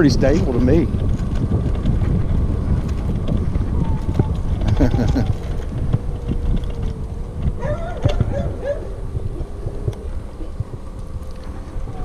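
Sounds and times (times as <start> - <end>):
scooter motor whining: 0.0 - 12.0
tyre rumble: 0.0 - 12.0
wind: 0.0 - 12.0
bark-like calls: 7.6 - 9.0.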